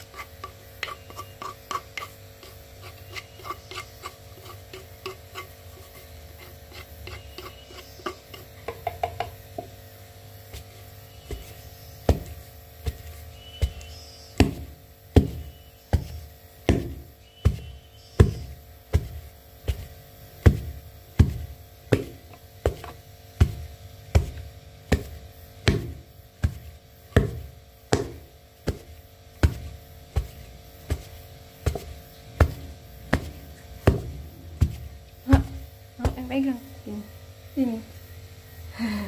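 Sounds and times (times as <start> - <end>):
pestle thudding in mortar: 7.1 - 9.8, 10.5 - 36.4.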